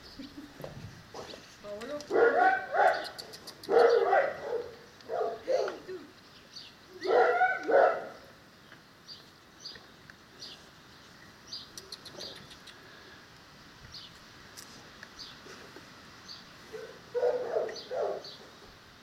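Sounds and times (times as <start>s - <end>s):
small birds chirping: 1.2s - 13.2s, 13.8s - 18.9s
dog yelping: 2.2s - 5.9s, 7.0s - 8.2s, 16.7s - 18.2s.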